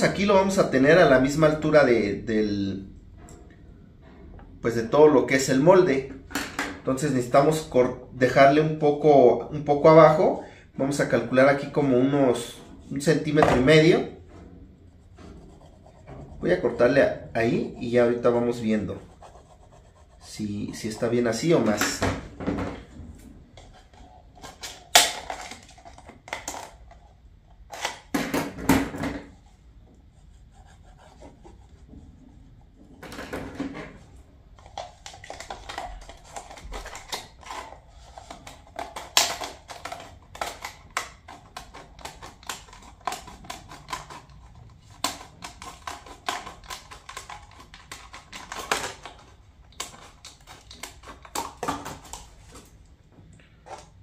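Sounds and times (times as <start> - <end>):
sharp cutting clicks and crackles: 38.7 - 52.2.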